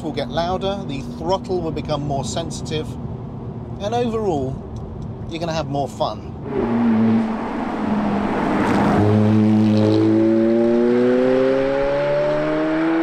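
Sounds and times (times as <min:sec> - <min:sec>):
road noise rushing: 0:00.0 - 0:13.0
car engine accelerating hard: 0:06.4 - 0:13.0.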